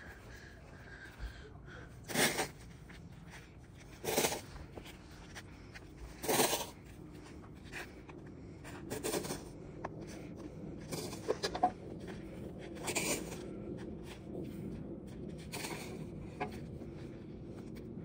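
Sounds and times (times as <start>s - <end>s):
snow shovel scraping paving: 2.1s - 2.6s, 4.0s - 4.6s, 6.1s - 6.8s, 8.9s - 9.5s, 12.8s - 13.5s, 15.4s - 16.1s.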